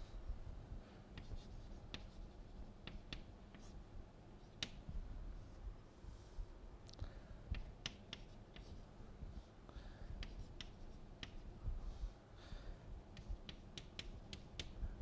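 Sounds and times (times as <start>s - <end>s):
chalk tapping on chalkboard: 1.2s - 2.2s, 2.8s - 3.7s, 7.6s - 8.8s, 10.2s - 11.4s, 13.2s - 14.8s.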